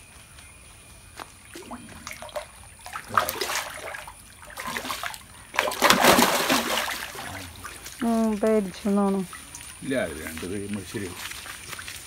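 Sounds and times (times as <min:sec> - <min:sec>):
fish thrashing water splashing: 0:01.5 - 0:08.4.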